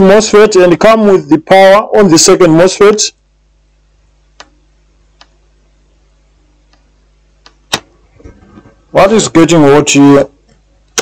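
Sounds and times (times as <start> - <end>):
faint low hum: 0.0 - 11.0
small sharp clicks: 4.4 - 4.6.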